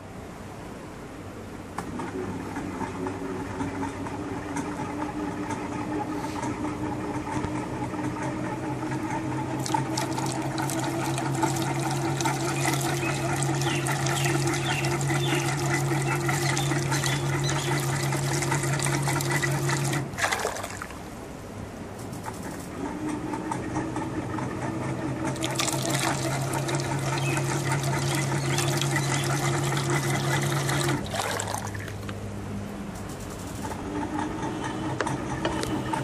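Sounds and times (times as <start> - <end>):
electric motor humming: 9.6 - 20.1, 25.3 - 31.0
water swishing and splashing: 9.6 - 21.1, 25.4 - 32.0.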